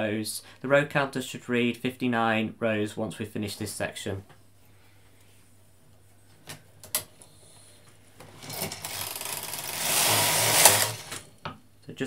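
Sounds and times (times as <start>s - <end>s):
knitting machine carriage rattling: 8.4s - 11.2s.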